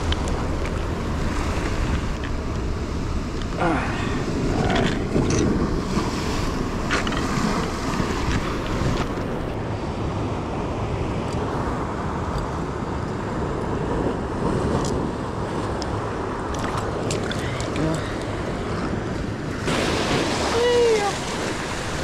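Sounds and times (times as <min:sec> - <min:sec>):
wind buffeting microphone: 0:00.0 - 0:09.6
ocean surf on rocks: 0:00.0 - 0:22.0.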